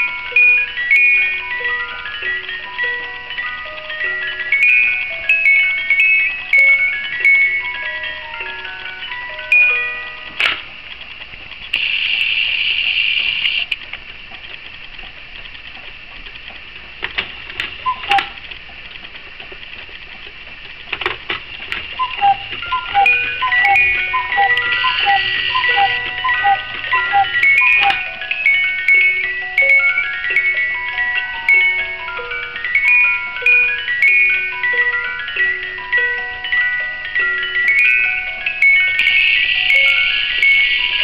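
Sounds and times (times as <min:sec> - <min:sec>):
music box plucked notes: 0:00.0 - 0:10.6, 0:21.7 - 0:41.0
clock hand clicks: 0:21.0 - 0:28.0.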